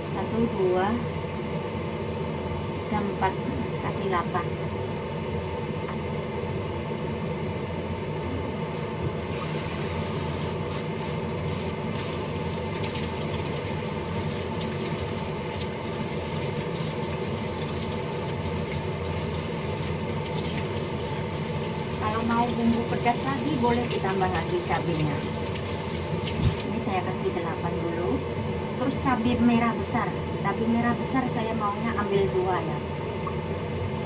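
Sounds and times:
tap water running into sink: 9.0 - 26.7.

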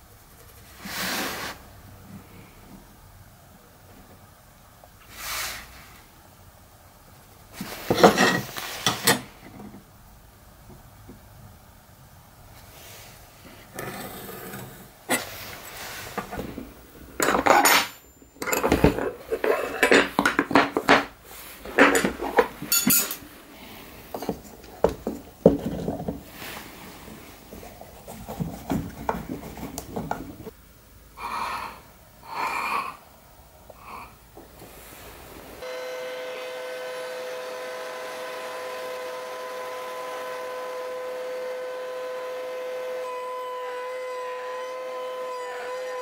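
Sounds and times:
metal tools clinking on workbench: 17.2 - 21.1, 21.7 - 23.3.

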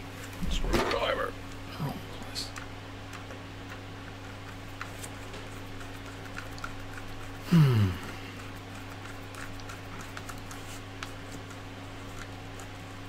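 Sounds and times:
steady low hum: 0.0 - 13.0
short falling vocal sound: 7.5 - 8.1.

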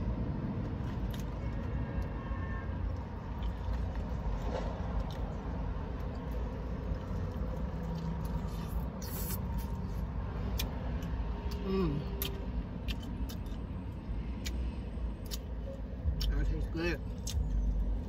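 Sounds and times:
chewing fried chicken: 2.9 - 15.5.

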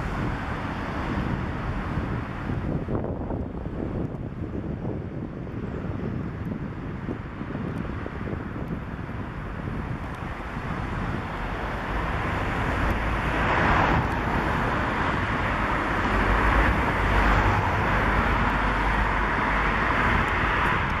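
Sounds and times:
cars passing: 0.0 - 21.0
low traffic rumble: 0.0 - 21.0.

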